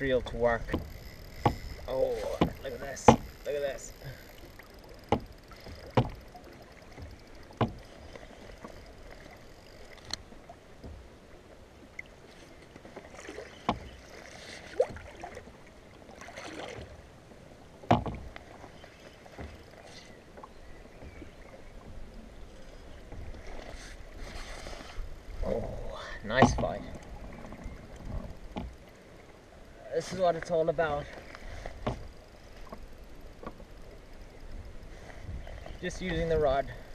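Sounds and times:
water lapping against kayak hull: 0.0 - 36.9
sharp knocks: 0.6 - 3.4, 5.1 - 6.2, 7.6 - 7.8, 17.9 - 18.3.

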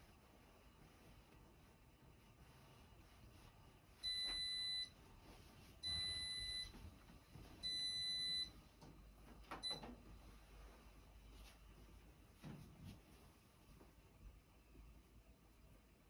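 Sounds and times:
appliance beeping: 4.0 - 4.9, 5.8 - 6.7, 7.6 - 8.5, 9.6 - 10.0.

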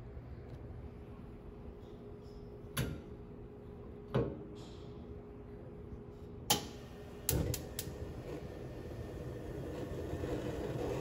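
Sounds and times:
spark igniter clicking: 6.5 - 8.0.

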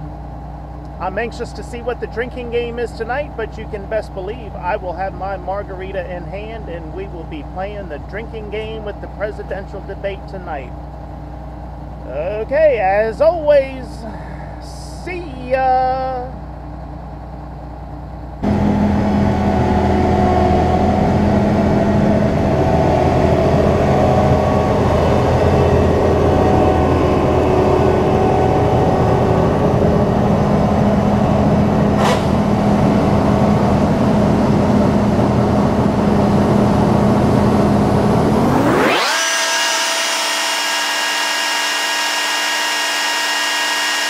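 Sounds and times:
combine harvester droning: 0.0 - 44.0.

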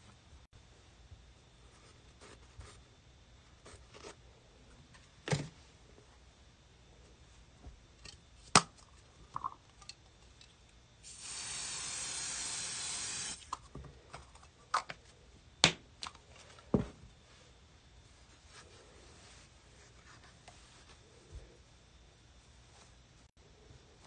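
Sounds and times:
aerosol spray hissing: 11.0 - 13.5.

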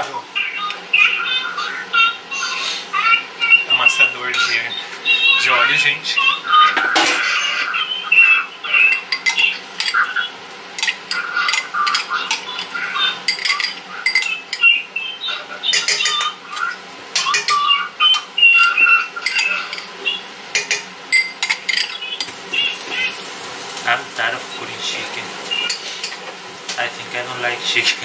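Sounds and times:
spoon clinking against glass: 13.3 - 14.7, 15.7 - 16.4, 17.2 - 18.2, 19.2 - 19.9, 20.5 - 22.3.

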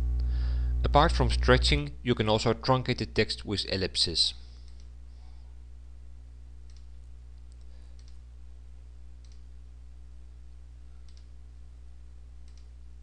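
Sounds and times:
low electrical hum: 0.0 - 13.0
computer mouse clicking: 6.6 - 8.2, 9.2 - 9.5, 11.0 - 11.3, 12.4 - 12.7.

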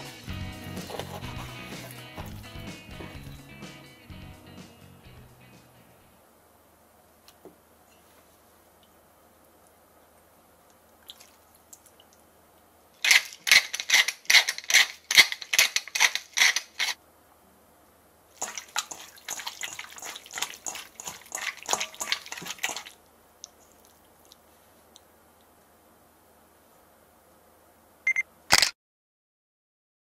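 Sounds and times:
hands squelching raw meat: 18.4 - 24.4.

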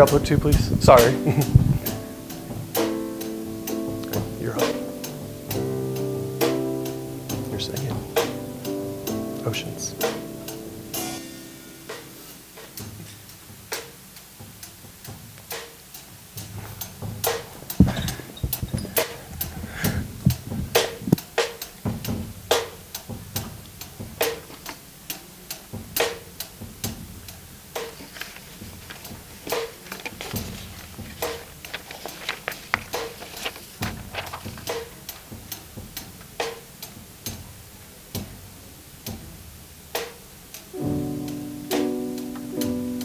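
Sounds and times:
low drum hits: 0.0 - 13.2, 16.5 - 21.2
drum kit playing softly: 0.0 - 43.0.

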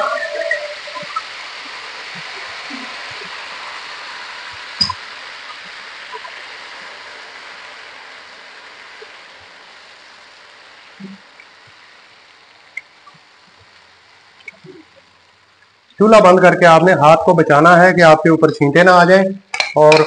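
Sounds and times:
sugar and ghee sizzling: 0.0 - 20.0
bowl clinking on pan: 19.5 - 20.0.

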